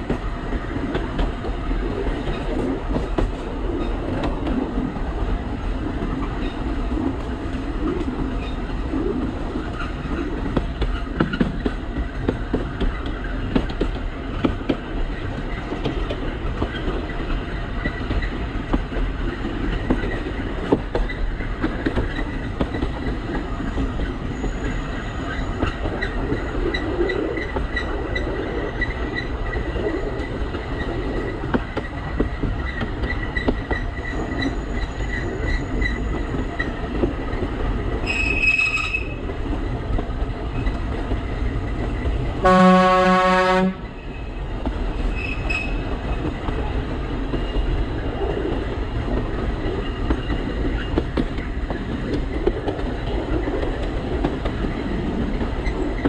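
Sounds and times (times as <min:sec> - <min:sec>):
train rumbling with wheel clicks: 0:00.0 - 0:56.0
train horn: 0:42.4 - 0:43.9.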